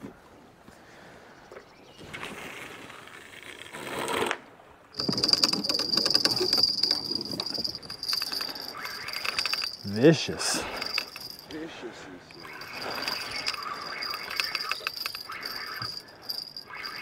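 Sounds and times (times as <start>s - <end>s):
fishing reel clicker ratcheting: 5.0s - 11.6s, 12.3s - 17.0s.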